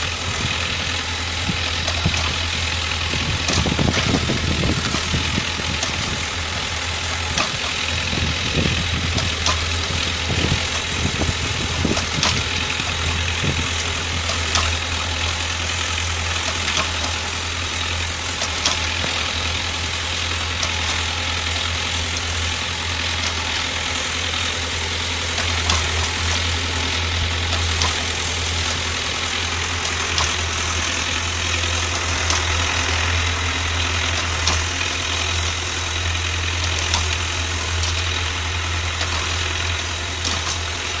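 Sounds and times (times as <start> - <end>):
tractor engine running: 0.0 - 41.0.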